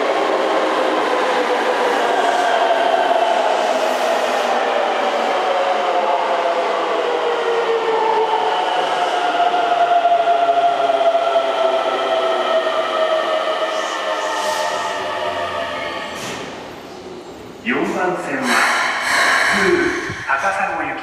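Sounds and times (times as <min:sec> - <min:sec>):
train braking whine: 0:18.4 - 0:20.6.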